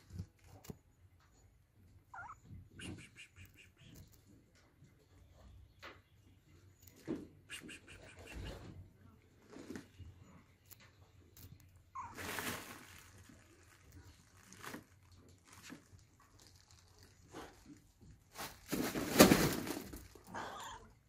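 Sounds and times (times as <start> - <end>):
cat meowing: 2.1 - 2.5.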